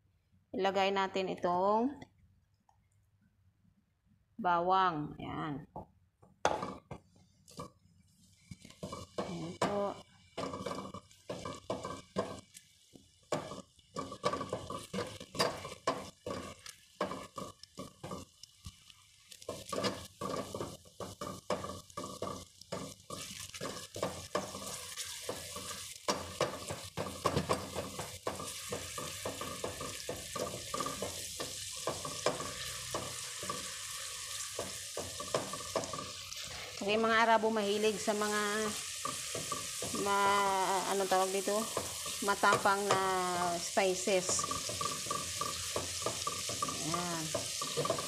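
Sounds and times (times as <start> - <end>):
garlic sizzling in oil: 6.4 - 48.0
spatula scraping a pan: 6.6 - 12.7, 13.3 - 37.0, 37.8 - 48.0.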